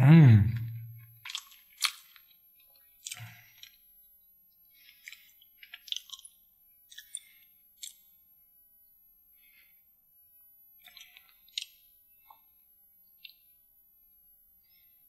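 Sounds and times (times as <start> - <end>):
sticky crackles of fingers picking food: 1.2 - 3.8, 4.7 - 8.2, 10.8 - 13.5.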